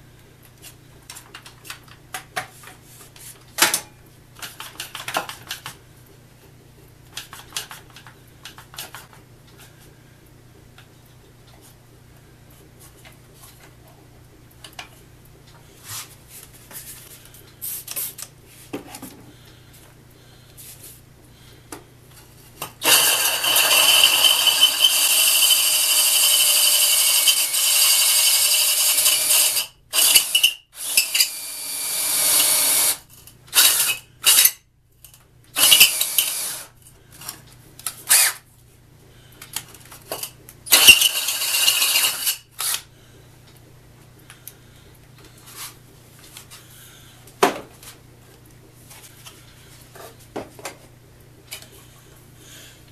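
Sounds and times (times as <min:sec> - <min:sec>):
drill hole saw grinding: 0:22.8 - 0:34.6, 0:35.6 - 0:36.7, 0:40.7 - 0:42.8.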